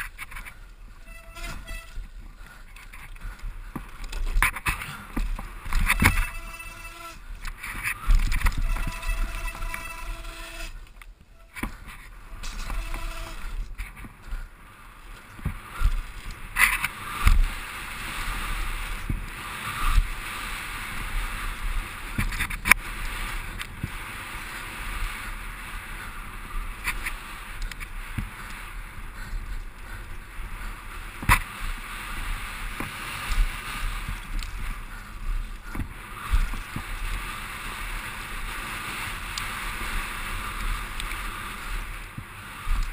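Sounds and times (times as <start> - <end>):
bike rattling over bumps: 0.0 - 42.9
wind and tyre noise: 0.0 - 42.9
pitched whine: 8.1 - 13.6.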